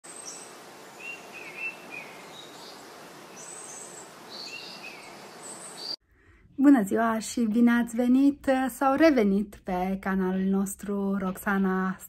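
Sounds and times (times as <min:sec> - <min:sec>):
birds chirping: 0:00.0 - 0:06.0
outdoor background hiss: 0:00.0 - 0:06.0.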